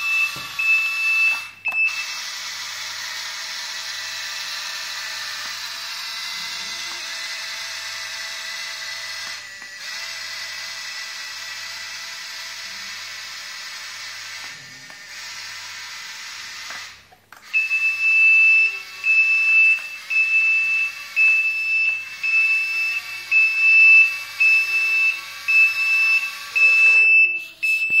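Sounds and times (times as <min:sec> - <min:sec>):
electronic reversing beeper: 0:00.0 - 0:02.2, 0:17.5 - 0:28.0.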